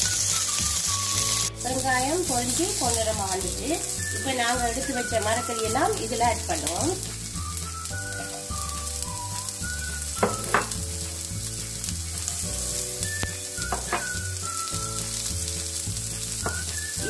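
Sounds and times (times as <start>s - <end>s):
oil sizzling in a frying pan: 0.0s - 17.0s
soft background music: 0.0s - 17.0s
utensil clicking on pan: 10.2s - 10.8s, 13.2s - 14.2s.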